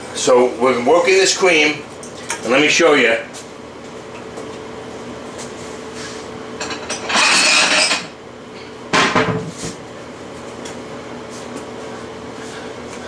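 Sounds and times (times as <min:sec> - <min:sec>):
steady low hum: 0:00.0 - 0:13.0
kitchenware clattering scrape: 0:06.6 - 0:08.1.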